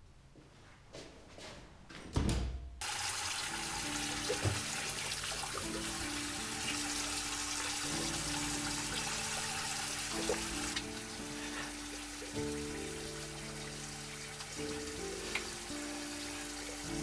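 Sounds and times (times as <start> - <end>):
tap water splashing into sink: 2.8 - 6.0, 10.2 - 10.9, 14.6 - 15.5
music with long held notes: 3.4 - 17.0.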